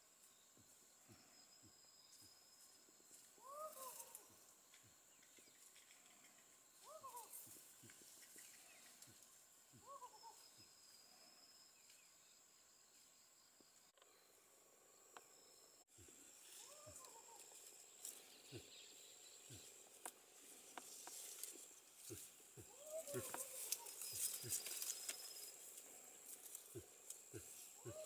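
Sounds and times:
soft ticks and rustles: 2.1s - 6.6s, 7.2s - 9.4s, 19.5s - 27.9s
high thin insect drone: 15.3s - 28.0s.

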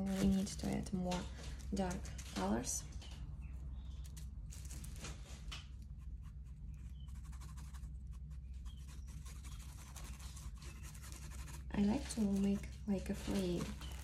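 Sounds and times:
steady low hum: 0.0s - 14.0s
painting tool scratching on canvas: 5.9s - 14.0s.

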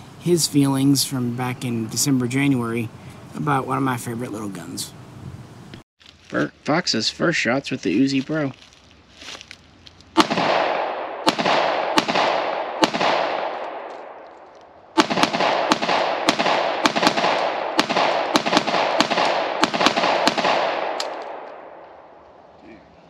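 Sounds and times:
pistol shots echoing: 10.2s - 21.8s.

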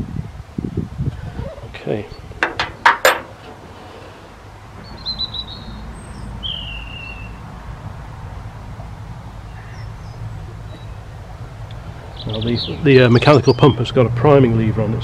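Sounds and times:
bird chirping trill: 2.0s - 2.4s, 4.8s - 7.5s, 9.4s - 11.4s, 12.0s - 14.0s
falling whistled bird note: 6.4s - 7.4s.

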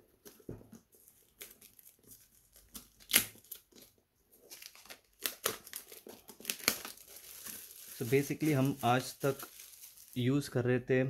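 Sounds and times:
packaging crinkling: 0.2s - 10.4s
seal tearing off box: 2.6s - 3.6s, 4.6s - 10.0s.

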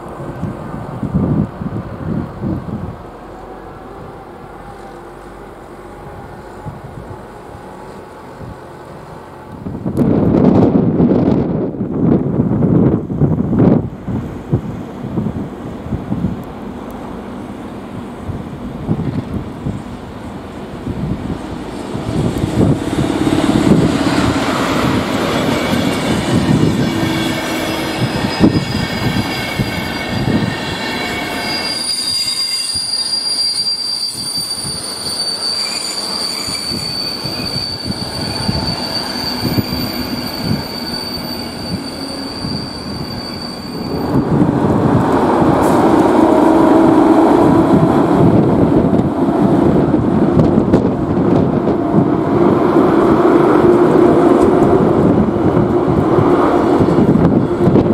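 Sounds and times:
electric locomotive passing: 0.0s - 57.9s
train wheels rolling on rail: 0.0s - 57.9s
high thin wheel squeal: 23.7s - 44.4s.

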